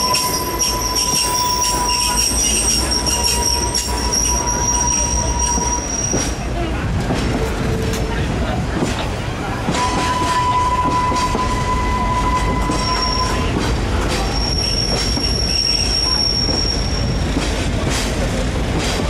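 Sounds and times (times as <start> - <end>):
train wheels squealing: 0.0 - 6.4, 9.7 - 17.5
train rumble: 0.0 - 19.0.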